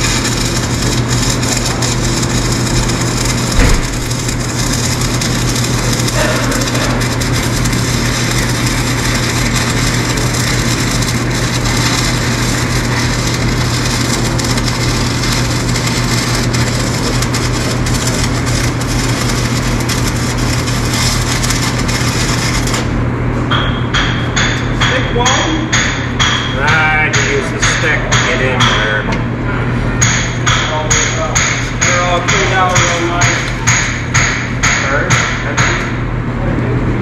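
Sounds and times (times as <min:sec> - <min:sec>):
arc welding crackling hiss: 0:00.0 - 0:22.9
low hum: 0:00.0 - 0:25.2.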